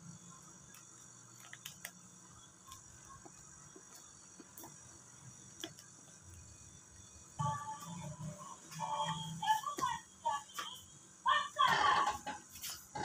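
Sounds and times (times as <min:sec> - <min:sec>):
squeegee clicking and rubbing on film: 0:00.6 - 0:04.9.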